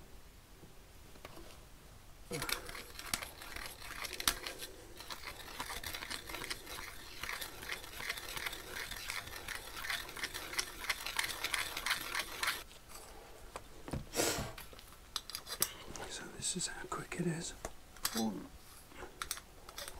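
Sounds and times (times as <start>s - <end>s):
metal pipe fittings clicking and scraping: 2.3s - 12.6s, 19.2s - 19.9s.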